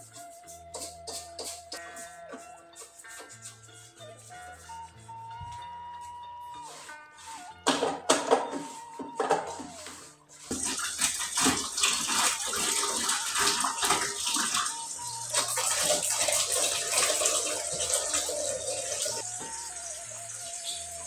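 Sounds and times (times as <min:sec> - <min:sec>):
water splashing in a pot: 0:10.5 - 0:20.8.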